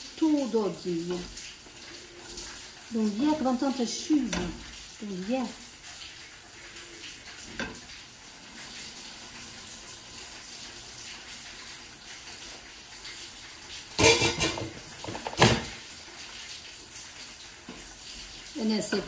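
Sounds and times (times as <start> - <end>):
water pouring into a pot: 0.0 - 19.0
kitchenware clattering against pot: 14.0 - 15.8.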